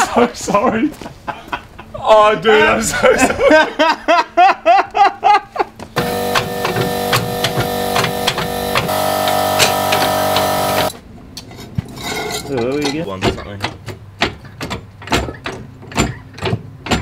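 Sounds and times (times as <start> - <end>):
man laughing: 0.0 - 2.0, 2.8 - 5.8.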